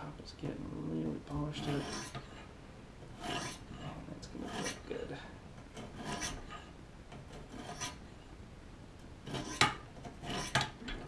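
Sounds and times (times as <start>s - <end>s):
sharpening stones rasping on blade: 1.6s - 2.4s, 3.2s - 3.8s, 4.4s - 4.8s, 5.8s - 6.7s, 7.4s - 8.0s, 9.3s - 10.8s.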